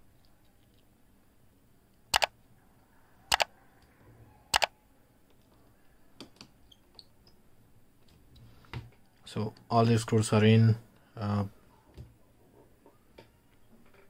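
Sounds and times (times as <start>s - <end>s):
mouse click sound effects: 4.5s - 4.7s.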